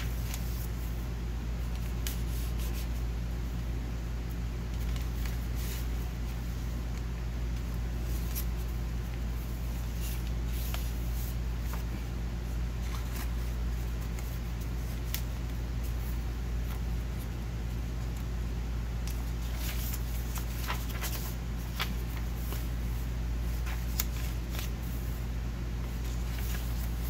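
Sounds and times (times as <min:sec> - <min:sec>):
paper rustling and page turning: 0:00.0 - 0:03.6, 0:04.2 - 0:27.0.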